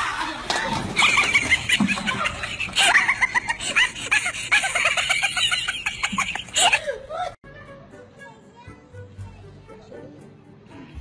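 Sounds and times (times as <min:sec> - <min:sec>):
high-pitched cackling laughter: 0:00.0 - 0:07.4.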